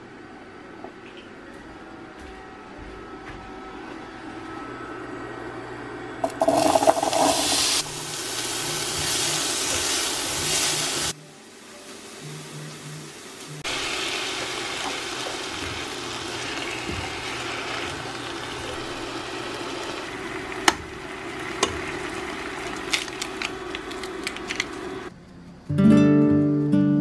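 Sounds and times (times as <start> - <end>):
vegetables sizzling in a pan: 6.2 - 25.1.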